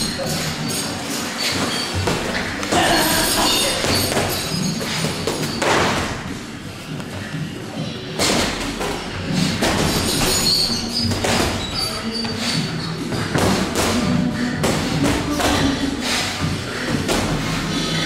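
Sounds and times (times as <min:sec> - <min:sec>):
boxing gloves punching thuds: 0:08.1 - 0:11.8, 0:13.2 - 0:17.7.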